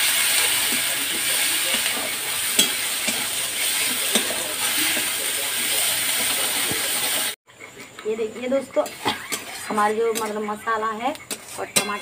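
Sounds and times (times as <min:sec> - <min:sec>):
spices sizzling in hot oil: 0:00.0 - 0:07.4.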